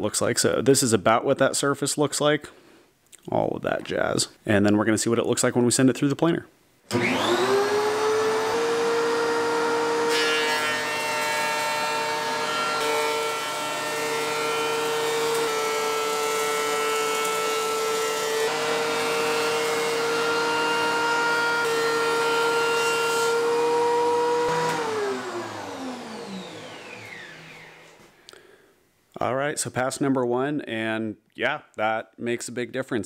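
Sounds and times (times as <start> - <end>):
thickness planer whining: 6.9 - 28.2.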